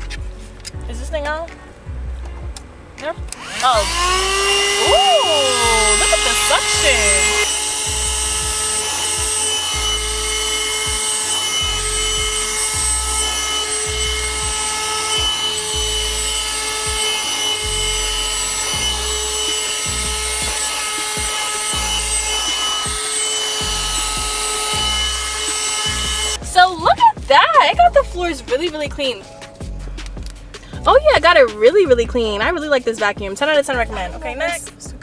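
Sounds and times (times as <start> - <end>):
background music with low beat: 0.0 - 35.0
handheld vacuum motor whining: 3.3 - 26.4.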